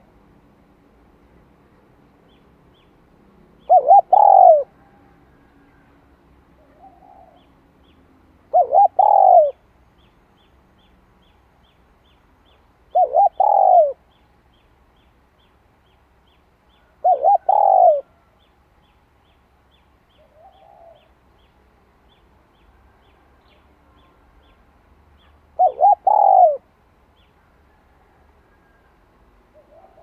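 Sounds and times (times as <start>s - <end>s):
dove cooing: 3.6s - 5.1s, 6.6s - 7.5s, 8.5s - 9.6s, 12.9s - 14.0s, 16.8s - 18.2s, 20.2s - 21.1s, 25.6s - 26.7s, 29.5s - 30.0s
soft quiet bird call: 3.6s - 5.9s, 6.6s - 30.0s.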